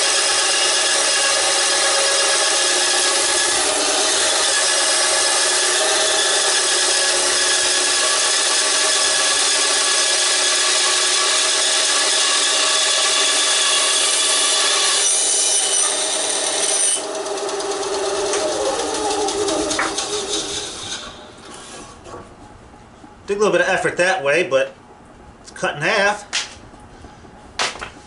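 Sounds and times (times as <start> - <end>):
saw motor humming: 0.0 - 21.8
band saw blade rasping through wood: 0.0 - 22.2.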